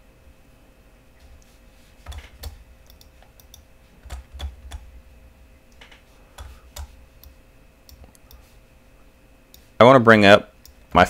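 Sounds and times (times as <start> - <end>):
keyboard and mouse clicks: 2.0 - 4.9, 5.7 - 8.4.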